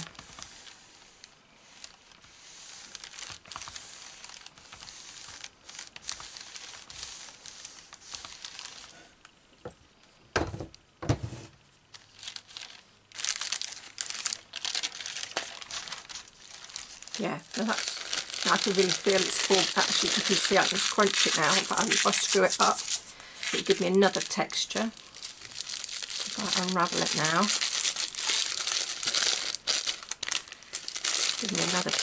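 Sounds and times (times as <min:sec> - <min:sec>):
crackling sheet being handled: 0:00.0 - 0:09.2, 0:11.3 - 0:32.0
iron scraping over paper: 0:00.0 - 0:09.2, 0:15.3 - 0:25.4, 0:26.3 - 0:27.5, 0:31.4 - 0:32.0.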